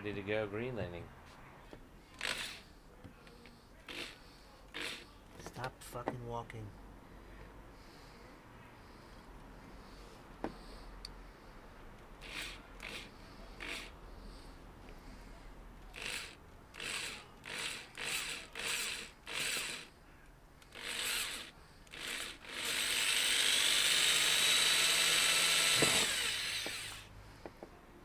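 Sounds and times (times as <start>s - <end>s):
electric drill boring plastic: 2.2s - 2.6s, 4.8s - 5.0s, 12.2s - 13.9s, 16.0s - 19.9s, 20.7s - 27.1s.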